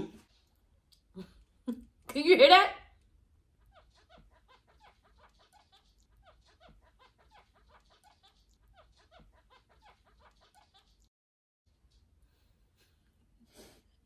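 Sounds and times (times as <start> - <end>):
cartoon squeaky boots: 3.7 - 11.1.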